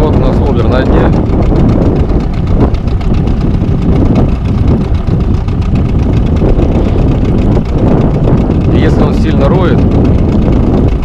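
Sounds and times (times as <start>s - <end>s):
outboard motor running: 0.0s - 11.0s
wind buffeting microphone: 0.0s - 11.0s.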